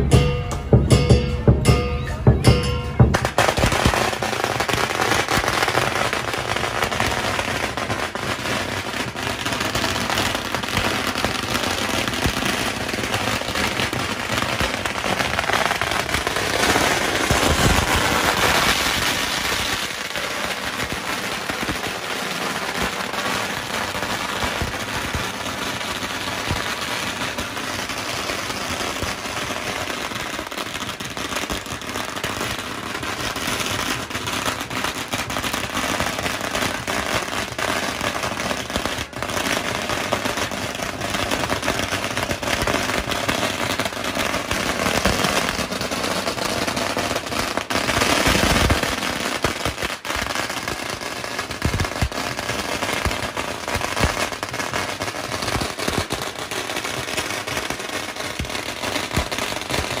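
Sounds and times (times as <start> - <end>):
firecrackers crackling: 0.0 - 60.0.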